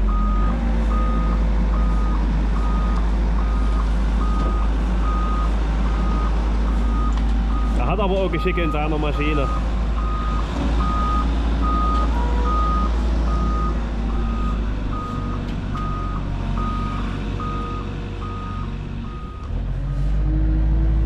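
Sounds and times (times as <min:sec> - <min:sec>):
construction machine engine running: 0:00.0 - 0:21.0
reversing alarm beeping: 0:00.1 - 0:19.5.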